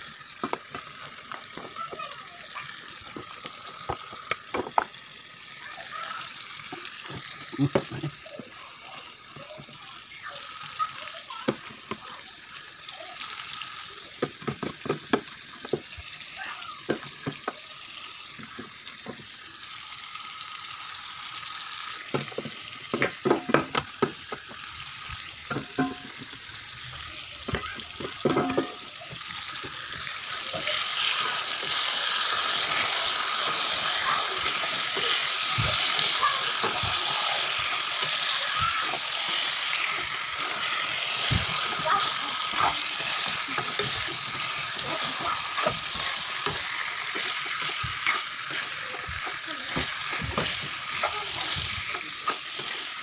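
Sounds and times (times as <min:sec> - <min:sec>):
chicken sizzling in a wok: 0:00.0 - 0:53.0
metal spoon clanking and scraping: 0:25.5 - 0:26.2, 0:28.0 - 0:28.9.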